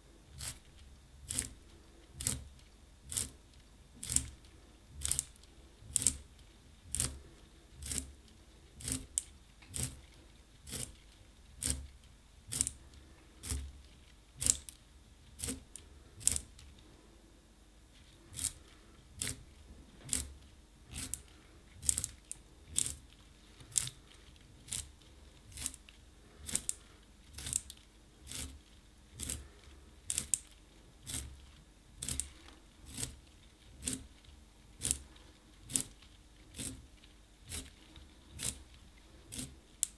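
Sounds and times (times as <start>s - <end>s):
pencil sharpener shaving wood: 6.9s - 8.1s, 8.8s - 11.0s, 20.1s - 23.0s, 26.4s - 34.1s, 34.8s - 36.9s, 37.5s - 39.9s.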